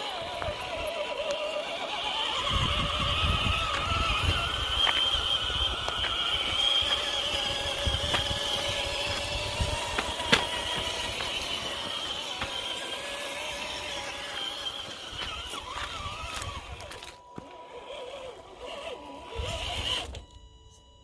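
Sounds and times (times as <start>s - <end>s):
stones and tyres clicking: 0.0s - 20.3s
electric motor whining: 0.0s - 21.0s
wind rumble on microphone: 2.4s - 6.6s, 7.3s - 11.2s.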